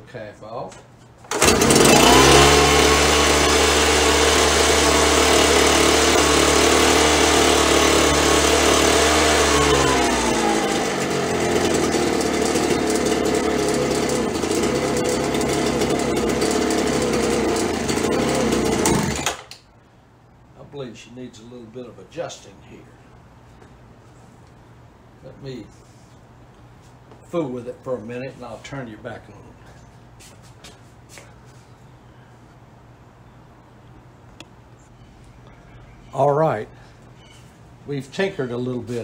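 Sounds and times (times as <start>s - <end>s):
leaf blower engine running: 1.3s - 19.5s.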